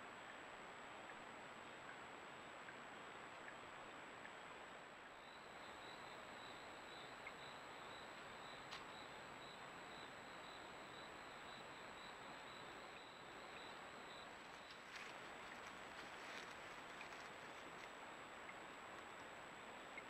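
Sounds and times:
faint high whine: 0.0s - 20.0s
faint high chirp: 5.1s - 15.6s
faint tick: 8.7s - 8.9s.

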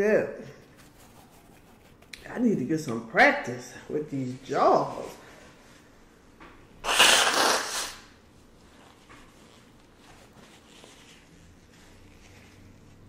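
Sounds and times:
person blowing nose: 6.8s - 8.2s
faint paper rustling: 8.4s - 13.0s.

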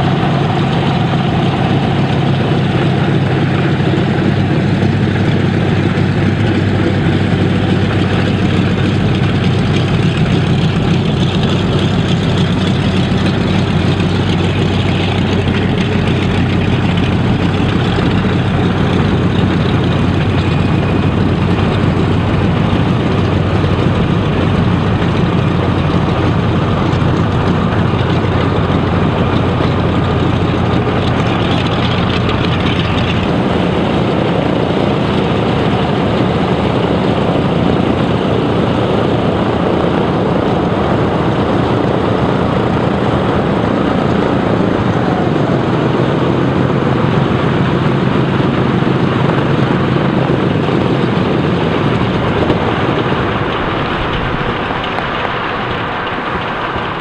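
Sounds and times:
propeller aircraft engines running: 0.0s - 57.0s.

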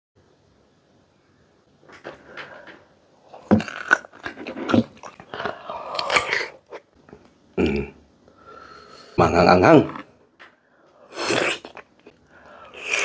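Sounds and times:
crunchy chewing of fruit: 3.2s - 7.2s.

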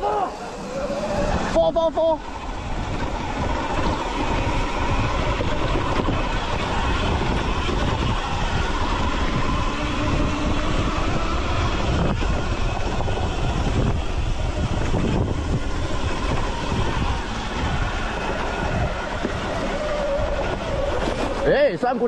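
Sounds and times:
electric dirt bike riding: 0.0s - 22.0s
tyres running over dirt: 0.0s - 22.0s
wind buffeting microphone: 0.0s - 22.0s.

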